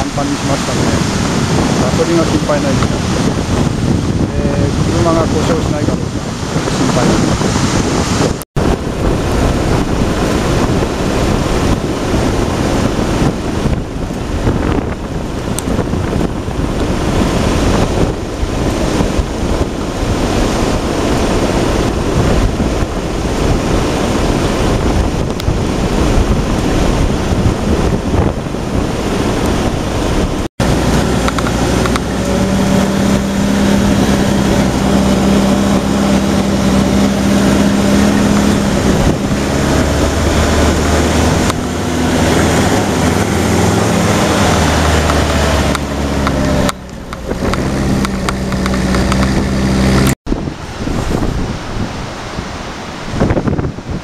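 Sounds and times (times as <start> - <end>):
surf rushing: 0.0 - 54.0
wind on microphone: 0.0 - 54.0
jeep engine humming: 29.3 - 50.2.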